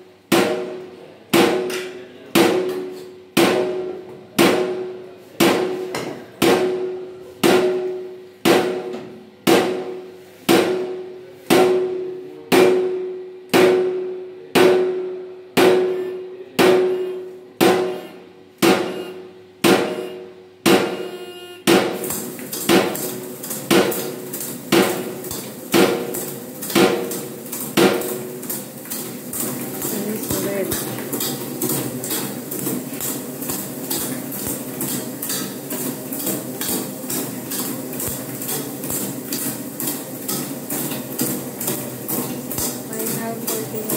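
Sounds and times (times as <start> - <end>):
hard metallic knocks: 15.6 - 16.0, 19.6 - 21.1.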